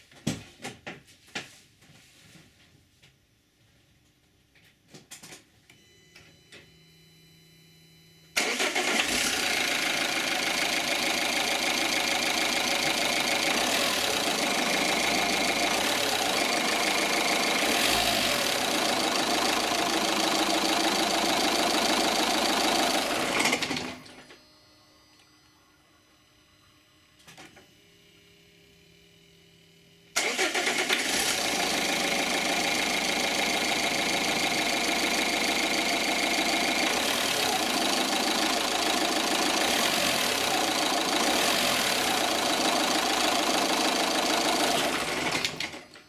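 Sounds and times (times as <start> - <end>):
diesel engine starting and idling: 8.4 - 24.2, 30.2 - 46.0.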